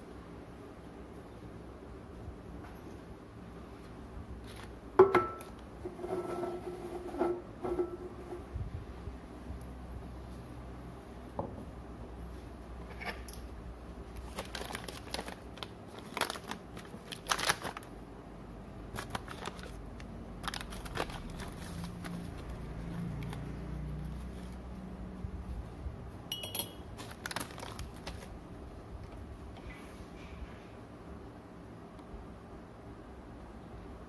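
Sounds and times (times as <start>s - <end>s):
plastic pouch crinkling: 14.2s - 18.0s, 18.9s - 22.6s, 27.0s - 28.4s
spoon clinking against ceramic mug: 26.3s - 26.8s.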